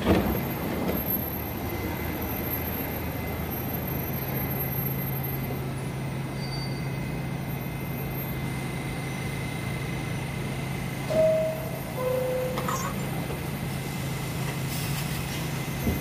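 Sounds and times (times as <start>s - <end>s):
subway station rumble and hum: 0.0s - 16.0s
brief loud tone: 11.1s - 13.0s.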